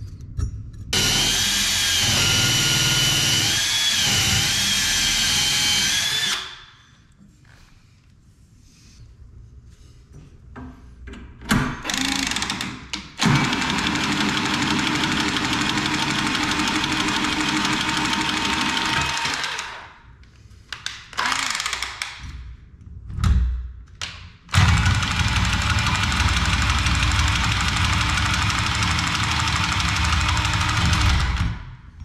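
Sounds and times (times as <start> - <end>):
power tool motor on copper pipe: 1.0 - 6.5.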